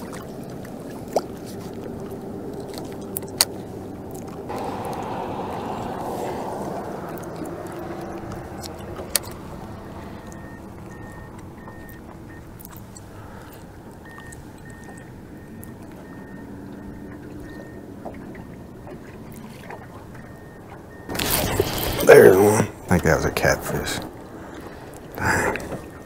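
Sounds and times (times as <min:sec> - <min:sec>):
fishing boat engine noise: 0:00.0 - 0:26.0
faint high beeps: 0:04.6 - 0:13.2, 0:14.0 - 0:22.4.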